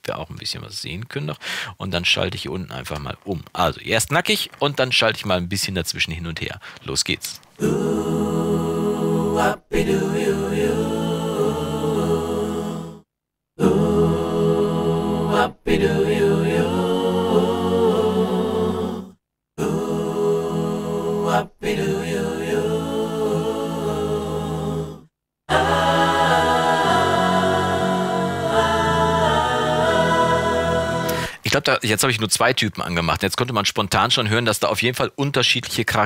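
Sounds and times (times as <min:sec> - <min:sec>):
choir singing sustained chords: 0:07.6 - 0:13.0, 0:13.6 - 0:31.4.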